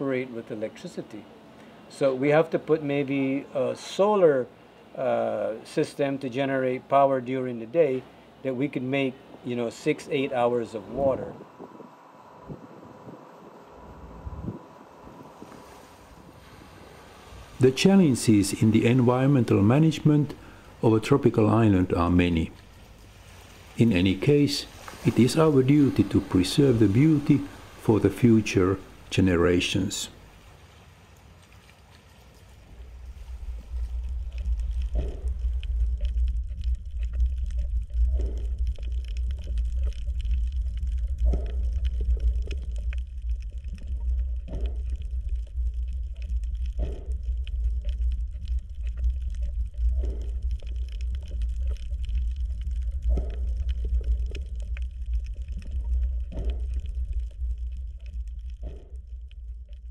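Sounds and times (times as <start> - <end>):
sea water rumbling and crackling: 10.3 - 59.9
sea water surging: 10.7 - 58.1.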